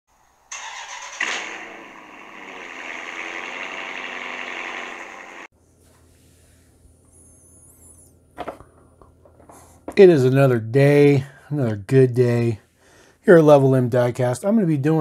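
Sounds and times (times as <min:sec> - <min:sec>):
loud engine-like noise: 0:00.5 - 0:05.5.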